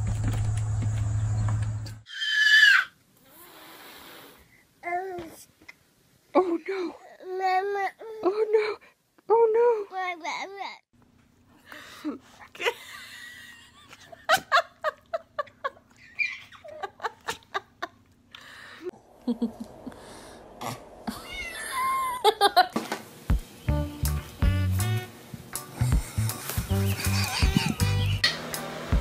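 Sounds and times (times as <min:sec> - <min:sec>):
cat meowing: 0:21.1 - 0:22.1
baby giggling: 0:26.7 - 0:28.2.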